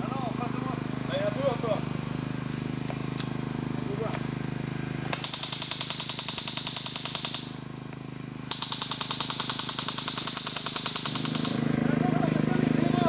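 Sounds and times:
airsoft rifle firing full-auto: 5.1s - 7.6s, 8.5s - 11.7s.

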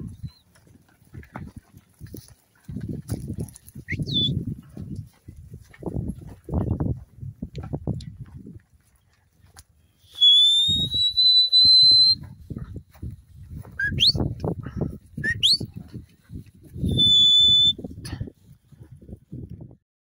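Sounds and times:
person whistling commands: 3.9s - 4.4s, 10.1s - 12.2s, 13.8s - 14.3s, 15.2s - 15.7s, 16.8s - 17.8s.

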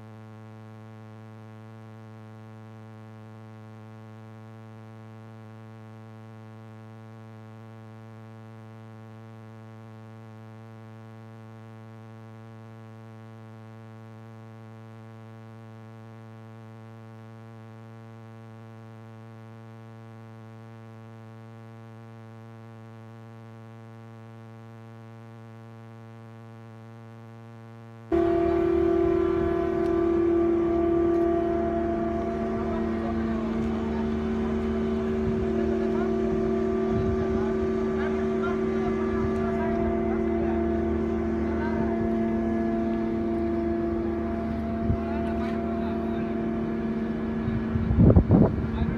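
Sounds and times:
steady low hum: 0.0s - 48.9s
machinery engine noise: 28.1s - 48.9s.

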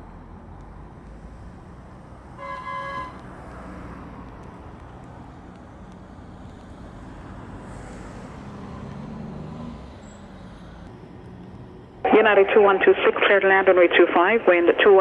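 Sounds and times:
distant jet engines rumbling: 0.6s - 11.2s.

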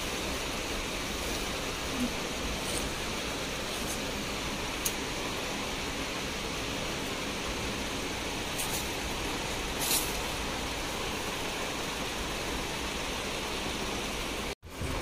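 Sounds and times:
shop room noise hiss: 0.0s - 15.0s
high rustles: 0.9s - 5.1s, 8.4s - 11.6s.

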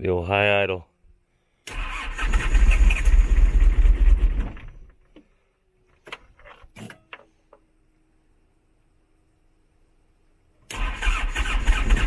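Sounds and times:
diesel engine cranking: 1.7s - 4.7s, 10.7s - 12.0s.

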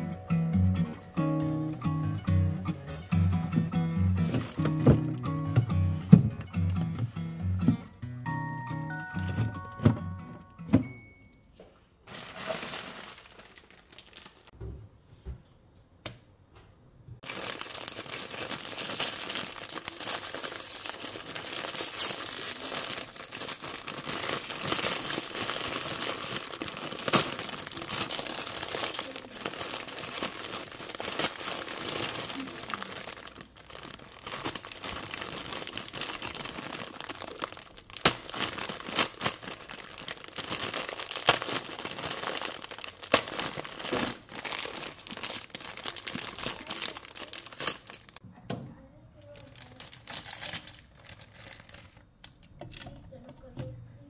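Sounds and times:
plastic packaging crinkling: 4.2s - 5.2s, 12.0s - 14.6s, 17.2s - 48.2s, 49.2s - 53.0s
packet tearing: 17.2s - 48.2s.

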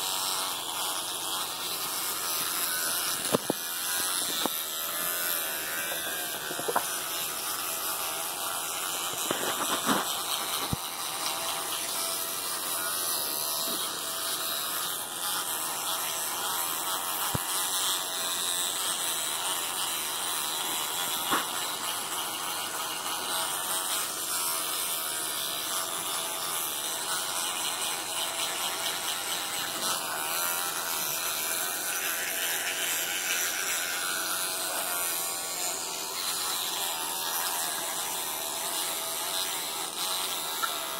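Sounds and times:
electric toothbrush buzzing: 0.0s - 40.9s.

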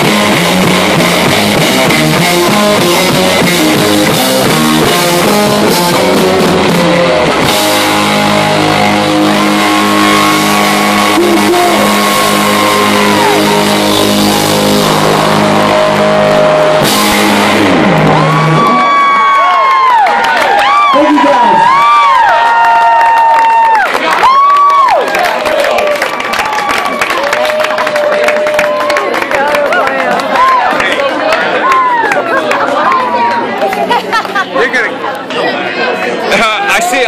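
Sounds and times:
live rock band playing: 0.0s - 19.8s
electric guitar riff: 0.0s - 20.1s
crowd cheering: 0.0s - 37.0s.

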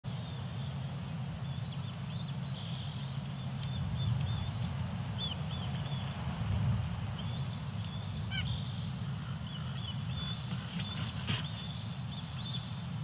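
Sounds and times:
nuthatch nasal calls: 7.2s - 12.8s.

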